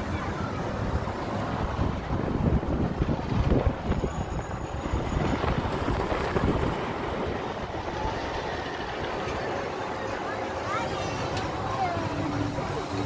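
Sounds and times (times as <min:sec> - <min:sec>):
outdoor background noise: 0:00.0 - 0:13.0
wind buffeting microphone: 0:00.1 - 0:09.8.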